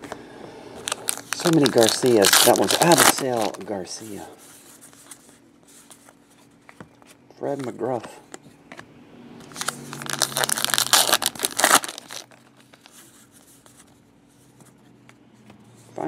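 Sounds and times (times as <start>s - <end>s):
card pack wrapper tearing and crinkling: 0.8s - 4.2s, 9.4s - 13.0s.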